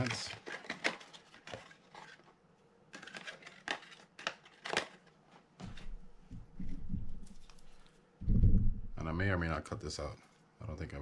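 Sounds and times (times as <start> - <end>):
low dull bumps: 6.3 - 7.3, 8.2 - 9.3.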